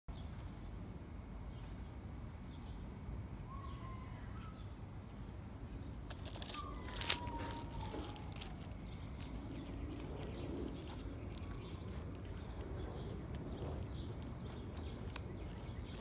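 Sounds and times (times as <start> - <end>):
distant birds chirping: 0.1 - 16.0
steady low rumble: 4.6 - 16.0.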